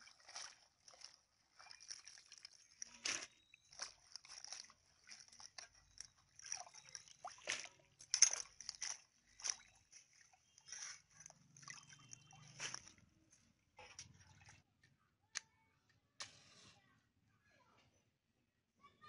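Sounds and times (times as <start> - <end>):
hands sloshing water in basin: 0.0 - 13.1, 13.8 - 14.7.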